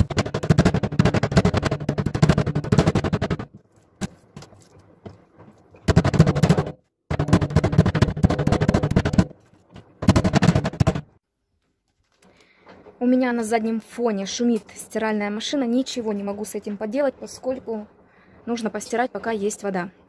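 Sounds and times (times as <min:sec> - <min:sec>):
meat mallet pounding on wooden board: 0:00.0 - 0:03.6, 0:05.9 - 0:09.3.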